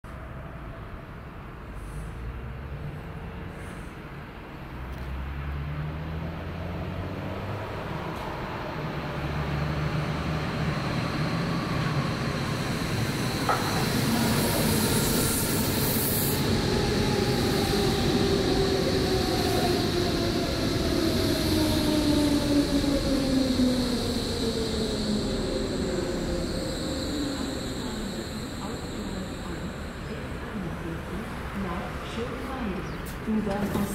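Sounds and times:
electric train arriving: 0:06.0 - 0:33.9
train motor whine: 0:19.4 - 0:30.8.

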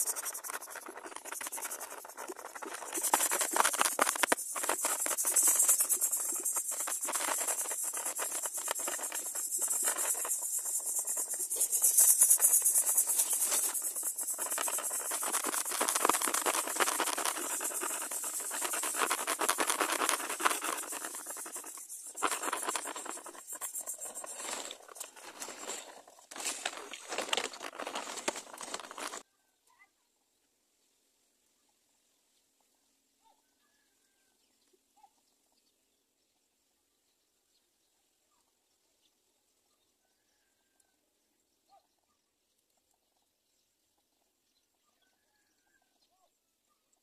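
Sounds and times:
nestlings begging hiss: 0:00.0 - 0:25.8.

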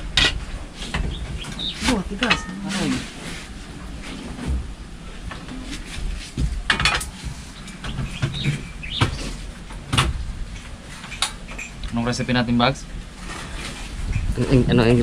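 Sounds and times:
birds chirping: 0:00.9 - 0:03.0, 0:07.1 - 0:09.9.

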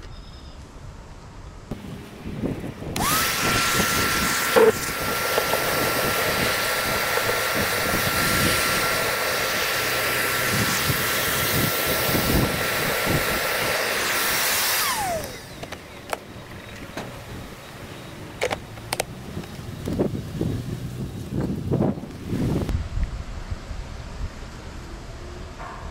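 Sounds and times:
vacuum sucking debris: 0:01.7 - 0:17.2
shop vacuum motor whine: 0:01.7 - 0:20.3.

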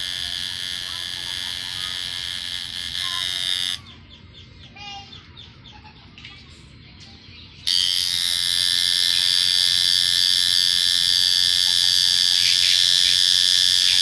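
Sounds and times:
tattoo machine buzzing: 0:00.0 - 0:03.9, 0:07.7 - 0:14.0.

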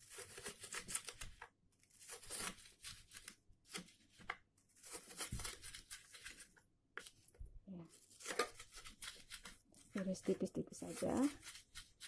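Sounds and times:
knife slicing onion on wooden board: 0:00.0 - 0:01.4, 0:07.9 - 0:09.6, 0:10.2 - 0:12.0.

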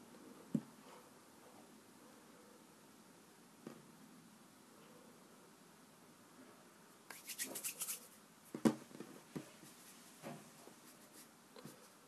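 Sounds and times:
play dough rubbing on table: 0:07.1 - 0:08.2.

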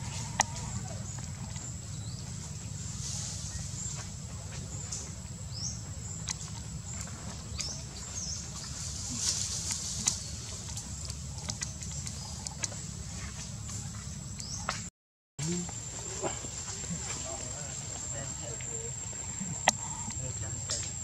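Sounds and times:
steady low rumble: 0:00.0 - 0:21.0
thin high whine: 0:15.4 - 0:21.0.

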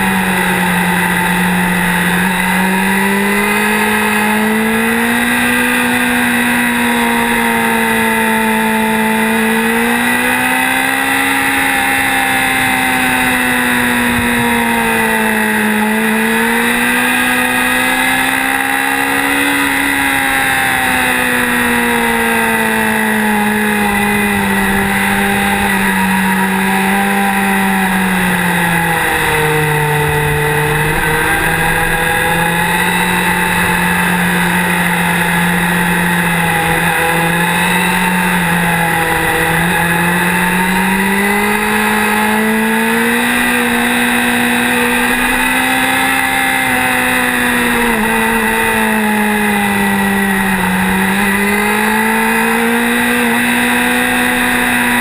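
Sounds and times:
motorcycle engine running: 0:00.0 - 0:55.0
road noise: 0:00.0 - 0:55.0.

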